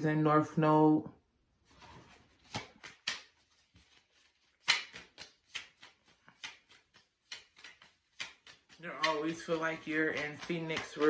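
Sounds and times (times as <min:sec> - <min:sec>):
cards clicking and tapping: 0:02.4 - 0:11.0.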